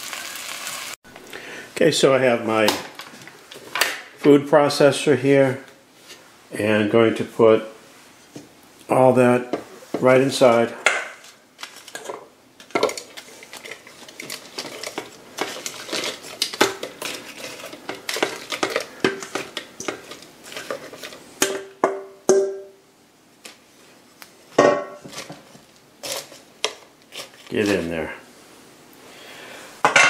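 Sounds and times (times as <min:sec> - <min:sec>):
wooden spoon scraping a bowl: 0:12.9 - 0:21.3.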